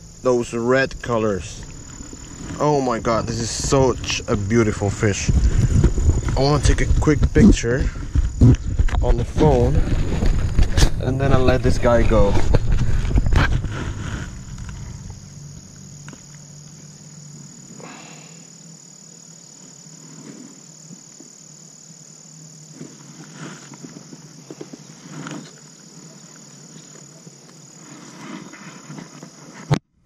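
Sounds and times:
insects chirring: 0.0s - 30.0s
knocks and rustles in plastic kayak: 1.6s - 15.2s, 22.7s - 26.1s, 26.8s - 29.9s.

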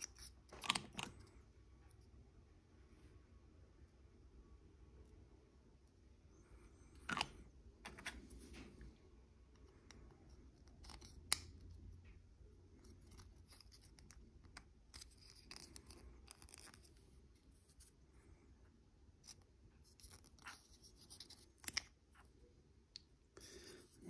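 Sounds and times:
plastic parts clicking: 7.0s - 8.1s.

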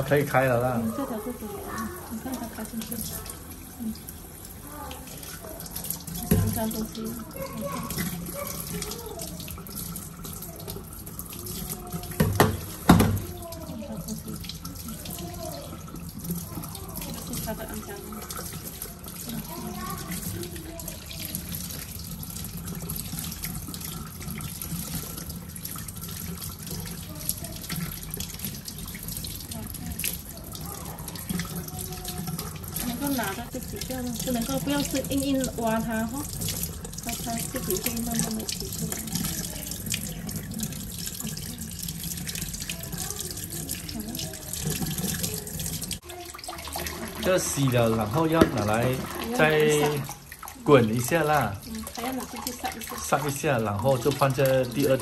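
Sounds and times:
tap water running into sink: 0.0s - 55.0s
tap running into steel sink: 6.1s - 6.9s, 12.0s - 13.7s, 48.2s - 50.0s.

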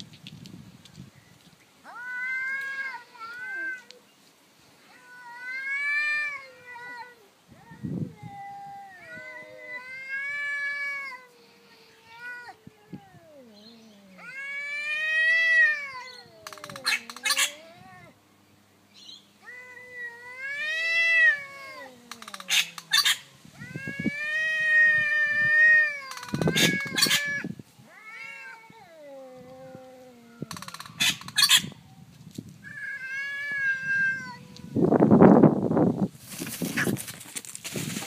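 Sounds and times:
cats yowling: 1.9s - 4.0s, 4.9s - 18.2s, 19.4s - 31.8s, 32.6s - 35.0s.

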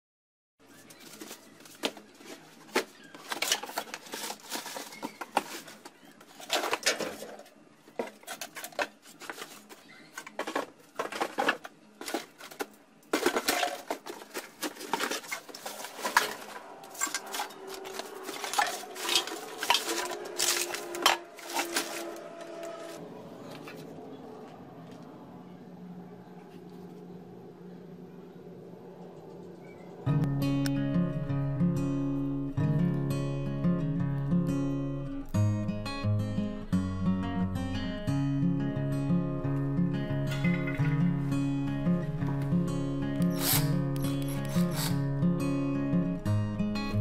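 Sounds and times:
objects clattering in cardboard boxes: 0.7s - 23.0s
plastic bag rustling: 0.7s - 23.0s.

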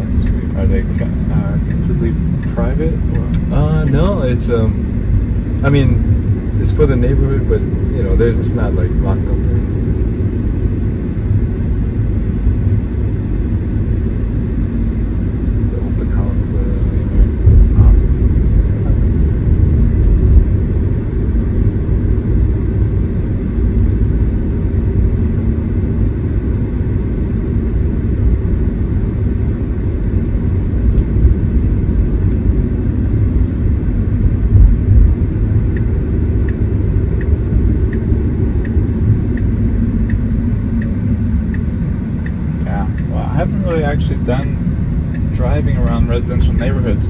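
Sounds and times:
road and tyre rumble: 0.0s - 47.0s
turn signal ticking: 34.0s - 44.0s, 44.6s - 45.4s.

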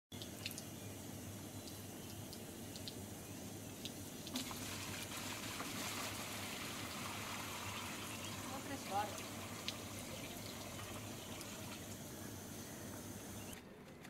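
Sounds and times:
water pouring into plastic tub: 4.3s - 12.0s.

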